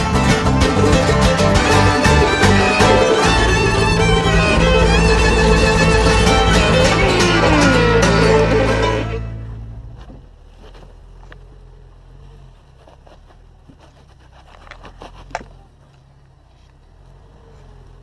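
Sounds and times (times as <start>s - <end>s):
engine running low and steady: 0.0s - 18.0s
clicks and scrapes on rock: 12.6s - 16.8s.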